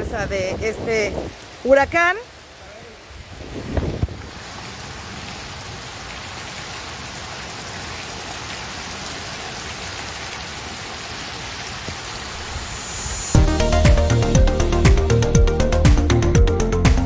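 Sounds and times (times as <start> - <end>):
wind-driven rain on street and cars: 0.0 - 13.4.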